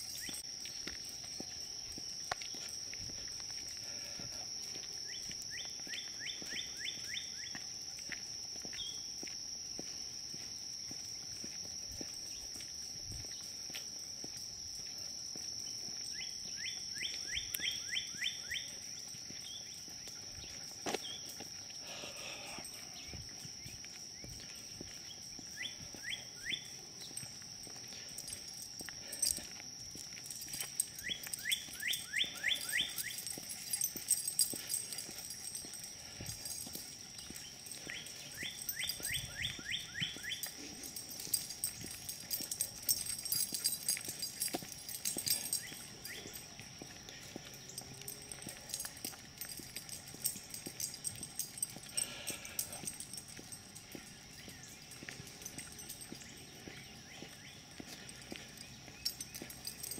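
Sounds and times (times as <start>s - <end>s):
footsteps on paved path: 0.0s - 59.9s
high-pitched insect drone: 0.0s - 59.9s
bird chirping: 37.1s - 42.3s.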